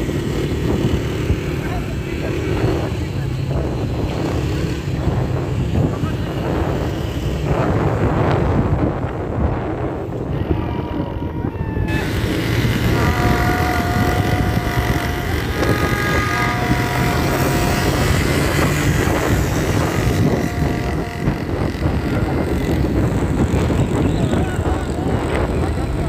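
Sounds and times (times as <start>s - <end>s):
street traffic: 0.0s - 26.0s
wind buffeting the microphone: 0.0s - 26.0s
vehicle horns blowing: 10.3s - 23.9s.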